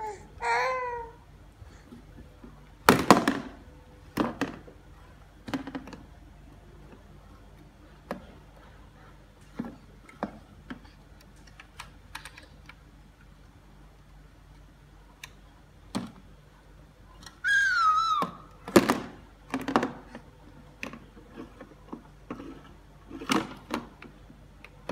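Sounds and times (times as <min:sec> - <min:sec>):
baby babbling: 0:00.0 - 0:01.2.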